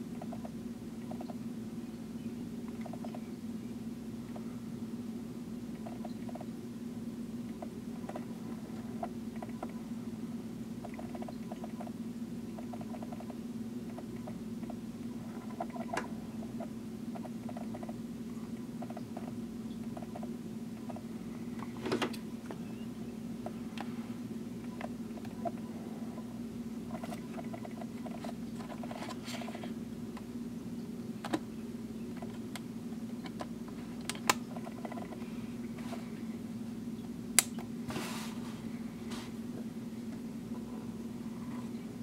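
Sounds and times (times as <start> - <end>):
low room hum: 0.0 - 42.0
faint handling clicks and taps: 7.5 - 9.8, 15.4 - 22.6, 24.6 - 26.3.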